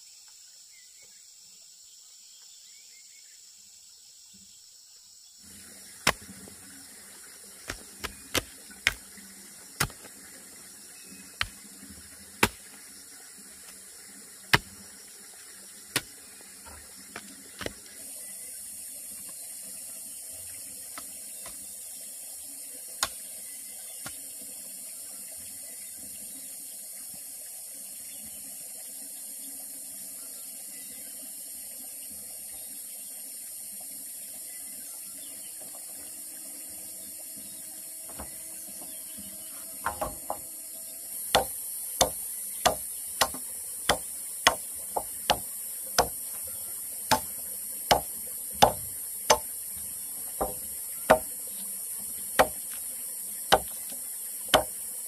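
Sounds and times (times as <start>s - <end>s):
sharp knocks: 12.4s - 12.6s, 38.1s - 38.4s, 39.8s - 40.5s, 41.3s - 46.4s, 47.1s - 47.3s, 47.9s - 49.5s, 50.4s - 51.3s, 52.4s - 52.7s, 53.5s - 53.8s, 54.5s - 54.7s.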